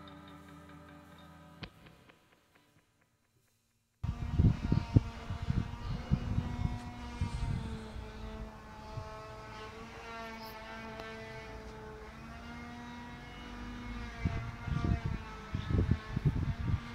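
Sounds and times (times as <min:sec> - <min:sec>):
engine drone: 0:04.0 - 0:16.9.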